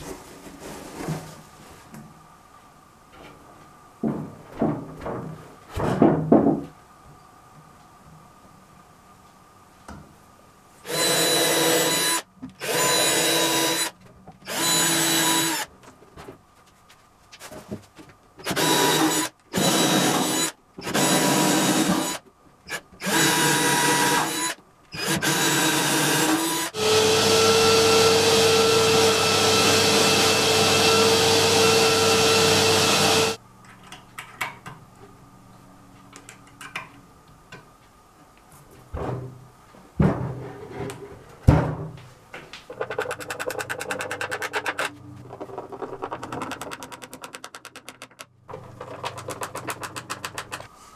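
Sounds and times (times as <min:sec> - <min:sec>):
power drill drilling: 0:10.9 - 0:13.9, 0:14.5 - 0:15.7, 0:18.4 - 0:33.4.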